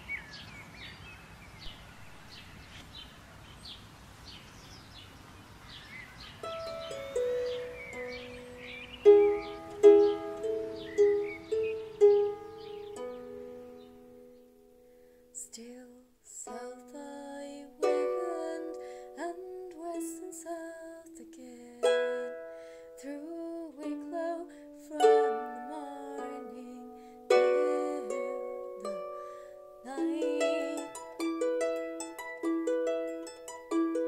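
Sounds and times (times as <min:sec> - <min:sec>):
harp melody: 0:06.4 - 0:15.0, 0:16.5 - 0:34.0.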